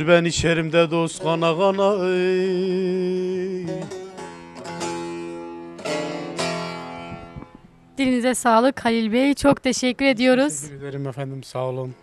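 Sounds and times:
long-necked lute plucked: 0.9 - 8.0.

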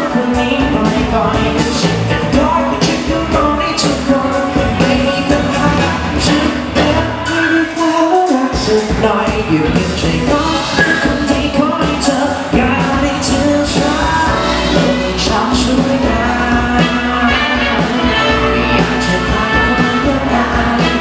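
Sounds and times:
horn section: 0.0 - 8.2, 12.5 - 21.0
bass guitar: 0.0 - 21.0
drums: 0.0 - 21.0
male lead vocal: 0.0 - 21.0.

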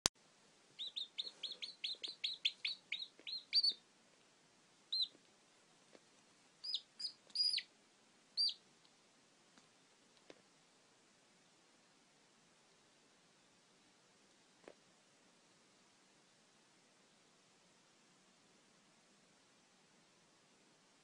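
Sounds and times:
chick peeping: 0.8 - 3.8, 4.9 - 5.2, 6.6 - 7.7, 8.4 - 8.6.

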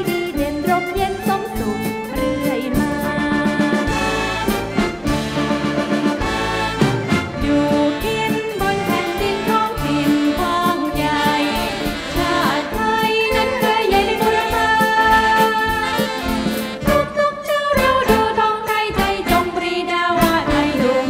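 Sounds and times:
big band with brass: 0.0 - 21.0
women singing together: 7.4 - 16.2, 16.9 - 21.0.

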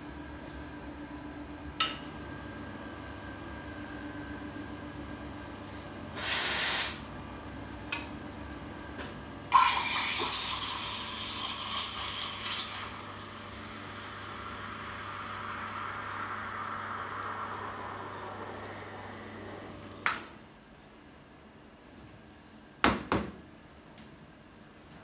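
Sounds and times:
steam blast: 6.2 - 7.0
steam wand hissing in milk: 6.2 - 7.0.

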